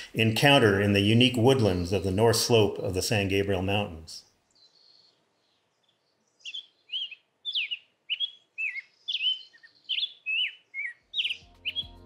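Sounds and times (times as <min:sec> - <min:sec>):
songbird whistling phrases: 0:06.4 - 0:12.0.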